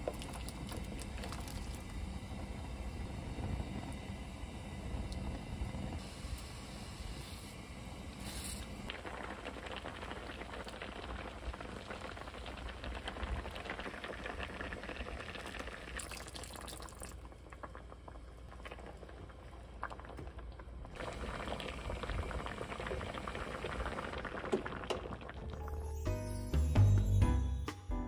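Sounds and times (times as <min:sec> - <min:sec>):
liquid pouring into a pan: 0:00.0 - 0:02.0, 0:15.3 - 0:17.2
syrup bubbling in a pan: 0:00.0 - 0:25.4.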